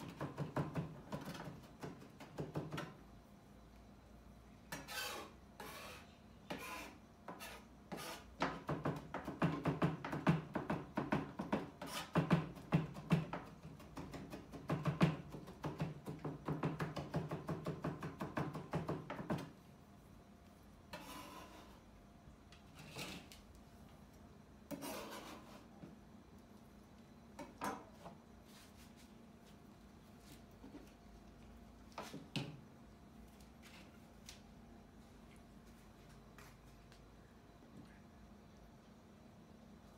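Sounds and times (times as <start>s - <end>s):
knife chopping on plastic board: 0.0s - 3.0s, 8.4s - 19.5s
scrapes and knocks: 22.6s - 23.4s.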